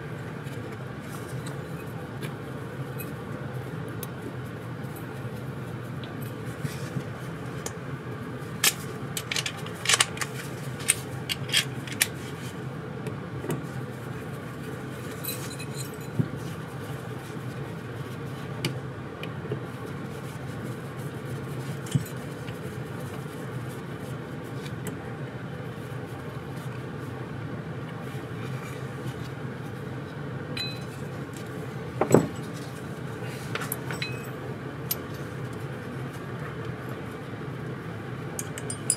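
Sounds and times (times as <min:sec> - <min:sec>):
steady low hum: 0:00.0 - 0:38.9
metal parts clinking on a bench: 0:08.6 - 0:12.1, 0:33.7 - 0:35.1, 0:38.4 - 0:38.9.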